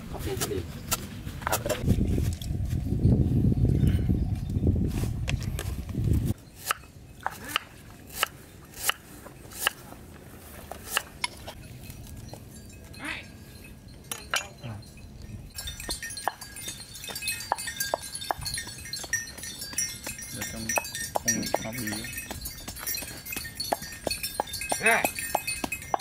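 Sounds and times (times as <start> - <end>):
clinks against metal wok: 13.9 - 26.0.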